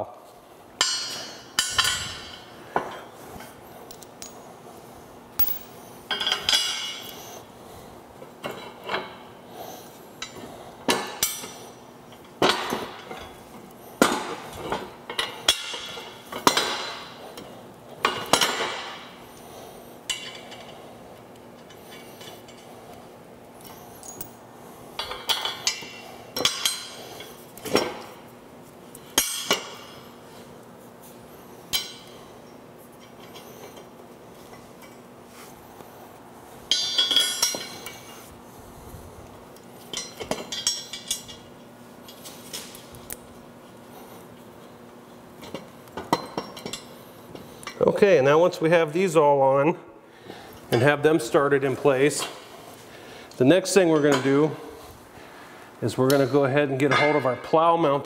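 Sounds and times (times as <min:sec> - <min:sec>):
metal parts clinking: 0:05.4 - 0:07.1.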